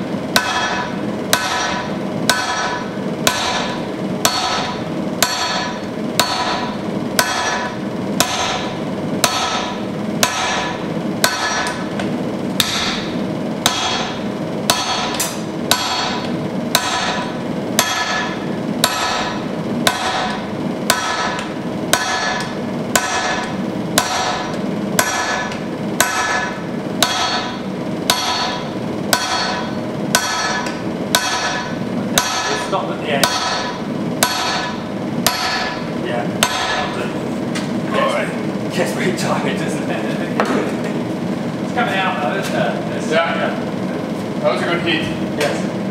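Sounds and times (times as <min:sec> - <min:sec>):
sledgehammer striking steel on anvil: 0:00.3 - 0:11.9, 0:12.6 - 0:37.0.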